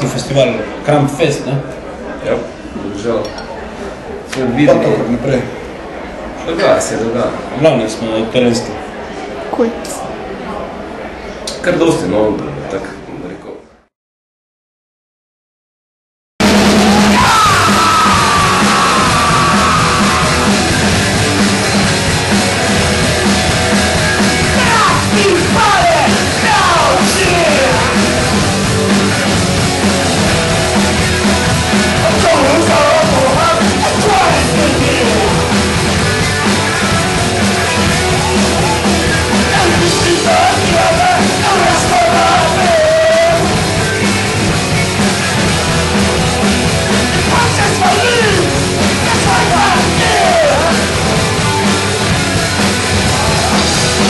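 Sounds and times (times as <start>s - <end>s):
drums: 16.4s - 54.0s
electric guitars: 16.4s - 54.0s
person shouting vocals: 24.6s - 27.9s.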